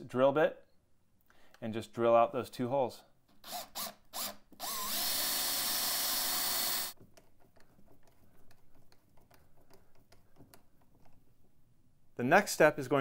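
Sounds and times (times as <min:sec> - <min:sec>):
power drill drilling: 0:03.4 - 0:07.0.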